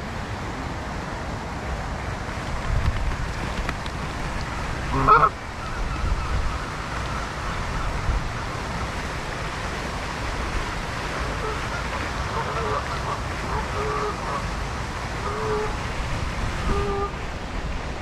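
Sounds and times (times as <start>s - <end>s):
wind rumble on microphone: 0.0s - 18.0s
goose honk: 4.9s - 6.4s, 11.2s - 14.4s, 15.2s - 15.8s, 16.7s - 17.1s.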